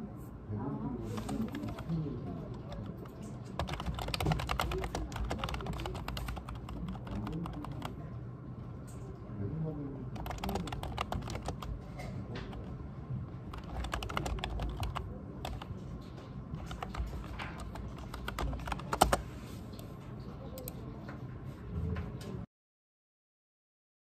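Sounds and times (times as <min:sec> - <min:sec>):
keyboard typing: 0:01.1 - 0:08.0, 0:10.2 - 0:12.7, 0:13.4 - 0:16.0, 0:16.6 - 0:19.9.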